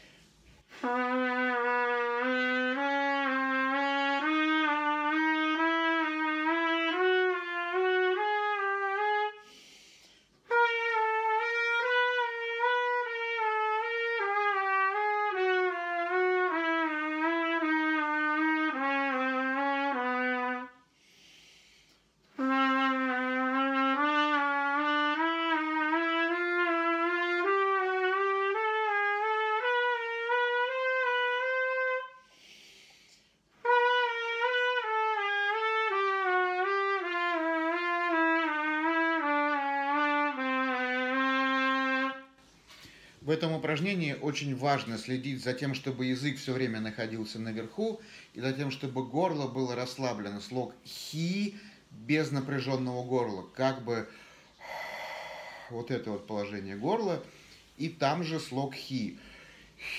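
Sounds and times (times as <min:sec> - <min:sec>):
trumpet playing slurred phrases: 0:00.7 - 0:09.4, 0:10.5 - 0:20.9, 0:22.3 - 0:32.3, 0:33.6 - 0:42.4, 0:43.2 - 0:54.8, 0:55.5 - 0:59.9
quick breath: 0:09.4 - 0:10.4, 0:20.9 - 0:22.2, 0:32.2 - 0:33.5, 0:42.5 - 0:43.2, 0:48.0 - 0:48.4, 0:54.1 - 0:55.7, 0:57.2 - 0:57.8, 0:59.2 - 0:59.9.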